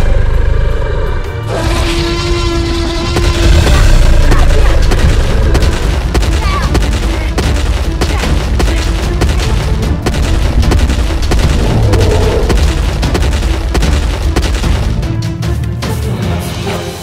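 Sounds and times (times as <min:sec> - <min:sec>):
heavy rumbling bass: 0:00.0 - 0:15.5
film music: 0:00.0 - 0:17.0
booms and impact hits: 0:03.0 - 0:15.4.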